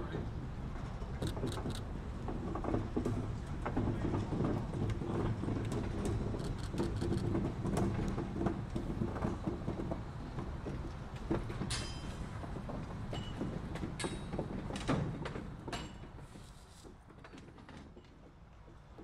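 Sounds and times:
diesel locomotive drone: 0.0s - 13.7s
railcar wheels clicking on track: 0.0s - 19.0s.

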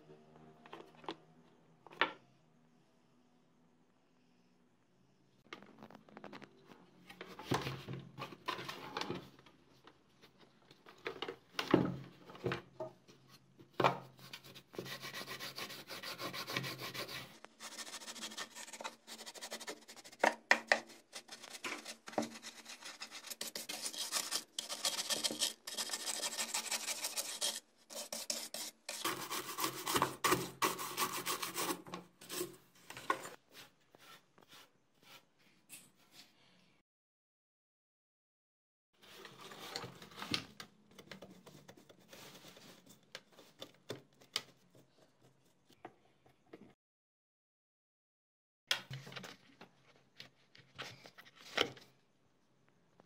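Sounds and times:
paintbrush scrubbing dust: 14.4s - 20.2s, 20.9s - 32.5s.

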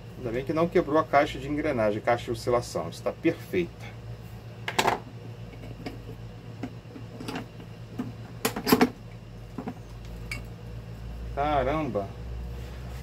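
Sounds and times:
fan parts knocking on workbench: 4.6s - 6.0s, 6.6s - 9.8s.

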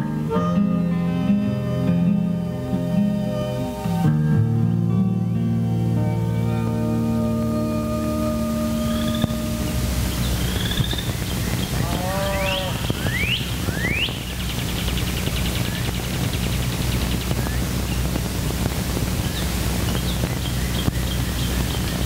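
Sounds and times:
steady low hum: 4.7s - 22.0s
birds whistling and trilling: 8.4s - 18.2s, 19.1s - 22.0s
farm animal call: 10.3s - 14.2s.

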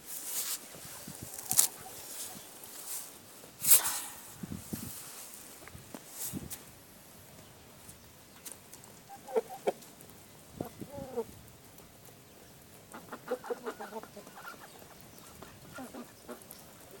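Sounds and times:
chickens clucking: 9.0s - 9.9s, 10.6s - 11.3s, 12.9s - 17.0s.

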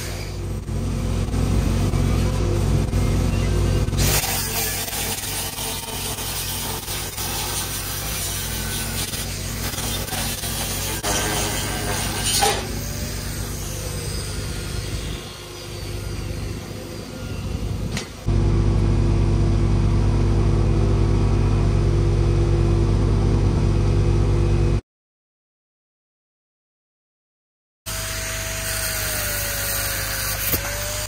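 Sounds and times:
engine running with low hum: 0.0s - 11.1s, 11.7s - 24.8s.

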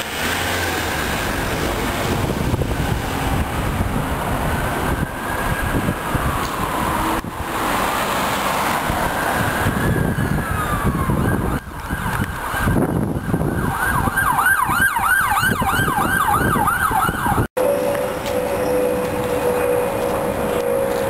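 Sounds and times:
street traffic: 0.0s - 21.0s
wind noise: 0.5s - 17.5s
siren wailing and yelping: 4.4s - 7.0s, 8.8s - 17.5s.

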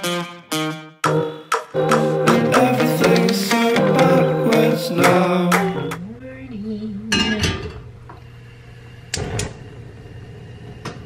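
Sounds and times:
song playing: 0.0s - 6.2s.

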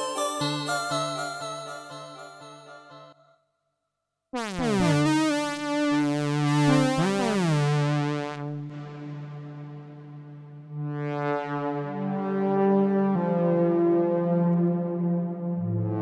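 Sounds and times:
brassy synthesizer chord with glide: 4.4s - 16.0s.

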